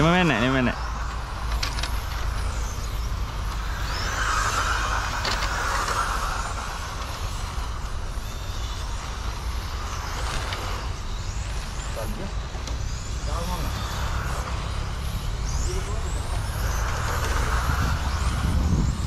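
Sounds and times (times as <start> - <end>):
car passing hiss: 0.0 - 12.3, 12.9 - 19.0
radio-controlled cars whining: 0.0 - 19.0
steady low rumble: 0.0 - 19.0.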